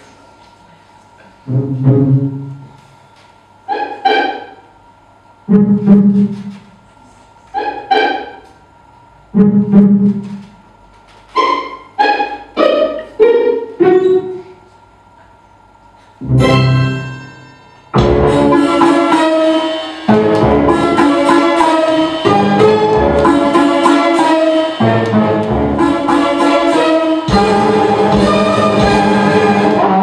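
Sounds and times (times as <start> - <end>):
sparse ringing instrumental notes: 16.2 - 30.0.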